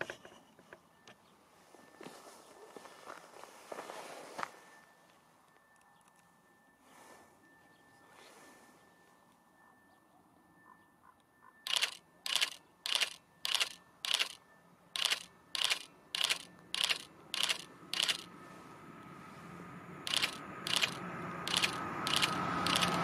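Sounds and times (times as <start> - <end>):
approaching train rumble: 15.0 - 23.0.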